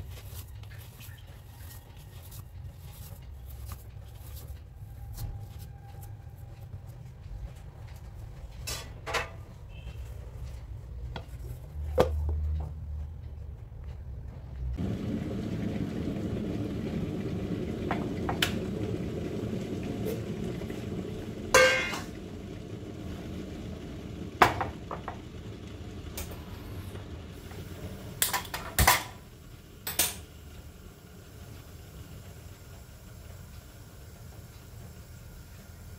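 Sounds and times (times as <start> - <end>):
low hum: 11.6 - 33.6.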